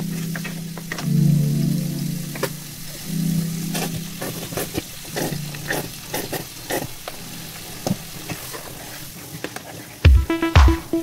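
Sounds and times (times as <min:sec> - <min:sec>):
vegetables sizzling in a frying pan: 0:02.0 - 0:09.2.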